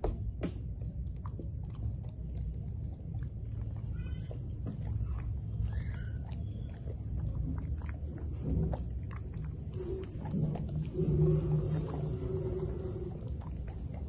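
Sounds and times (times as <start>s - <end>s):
puppy chewing: 0.2s - 14.0s.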